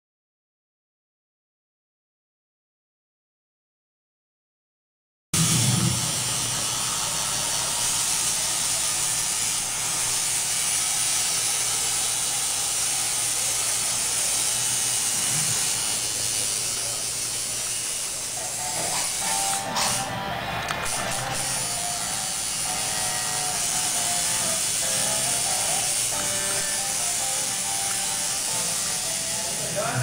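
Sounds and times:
steady hiss: 0:05.4 - 0:20.2, 0:21.0 - 0:30.0.

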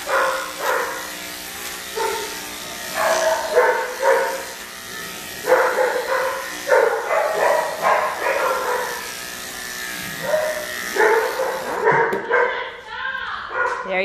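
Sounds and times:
dog barking: 0:00.0 - 0:01.1, 0:02.0 - 0:04.5, 0:05.4 - 0:09.1, 0:10.2 - 0:12.7, 0:13.5 - 0:13.9
electric dog clippers humming: 0:00.0 - 0:14.0.

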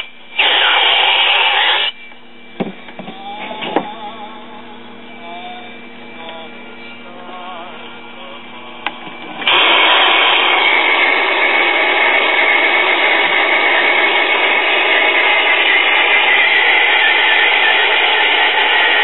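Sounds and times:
radio static hiss: 0:00.0 - 0:02.2, 0:06.4 - 0:19.0.

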